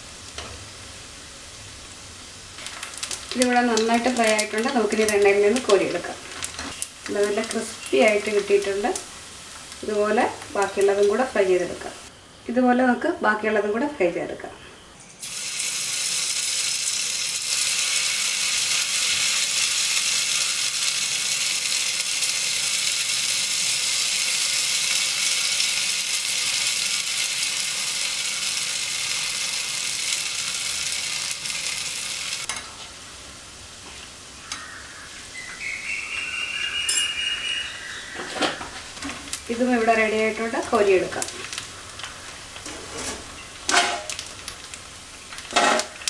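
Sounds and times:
batter sizzling in hot oil: 0.0 - 11.5, 15.0 - 32.5, 38.9 - 46.0.

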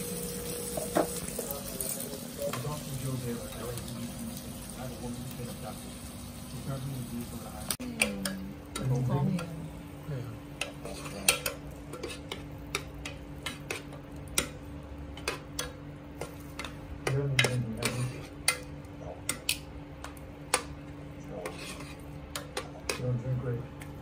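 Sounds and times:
metal tongs clicking on pan: 19.3 - 20.7.

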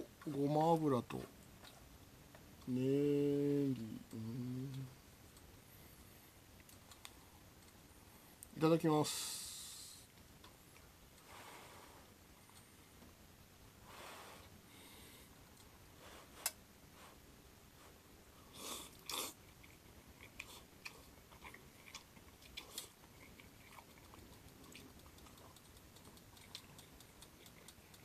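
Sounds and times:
person chewing food: 18.5 - 28.0.

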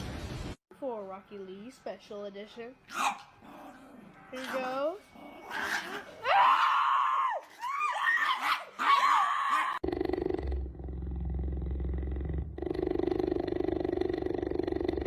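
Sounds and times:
cheetah purring: 9.8 - 15.0.

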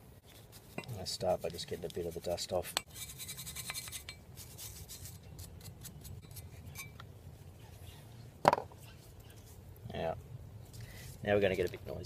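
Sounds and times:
metal scrapes and clinks: 2.8 - 4.2, 6.1 - 7.0.

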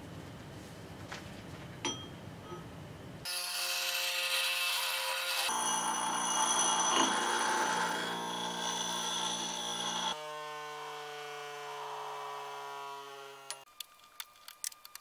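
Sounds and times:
bench grinder motor hum: 3.3 - 13.6
grinding wheel hissing on metal: 5.4 - 10.2.

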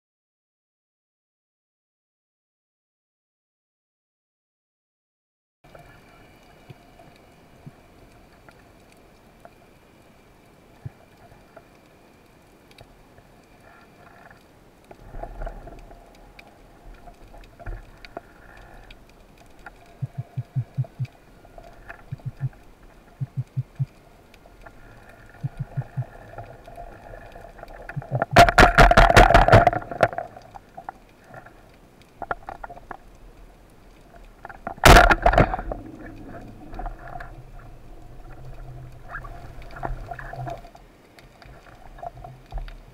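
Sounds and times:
faint underwater hiss: 5.7 - 28.4, 29.8 - 42.9
speargun firing crackle: 28.1 - 30.4, 34.7 - 36.1.

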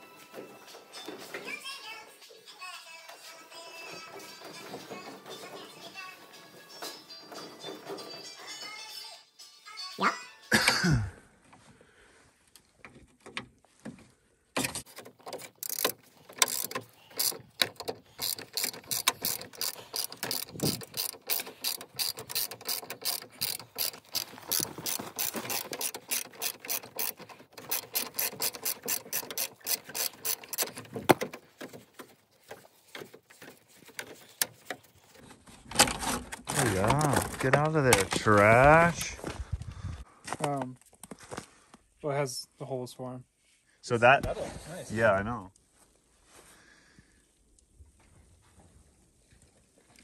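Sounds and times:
socket ratchet clicking: 14.8 - 32.1.

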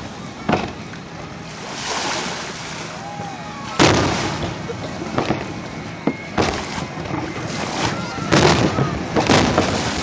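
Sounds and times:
steady background noise: 0.0 - 10.0
firework booms echoing: 3.8 - 5.5, 6.4 - 7.1, 8.2 - 10.0.

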